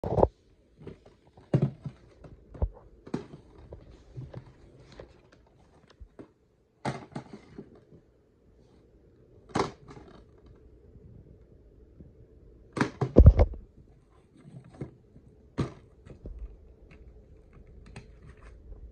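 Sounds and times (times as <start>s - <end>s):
plastic case handling knocks and rustles: 0.1s - 7.9s, 12.8s - 13.6s, 14.4s - 16.6s.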